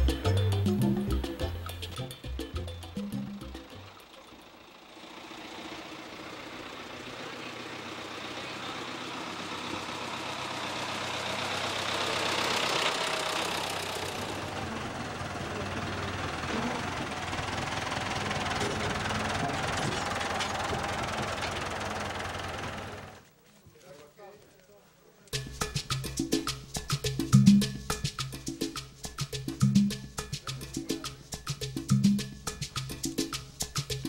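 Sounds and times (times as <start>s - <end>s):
tractor engine running: 0.0s - 23.4s.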